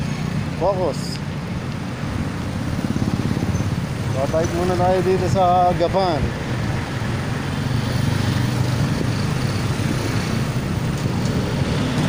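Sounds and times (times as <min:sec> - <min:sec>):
traffic and road noise: 0:00.0 - 0:12.0.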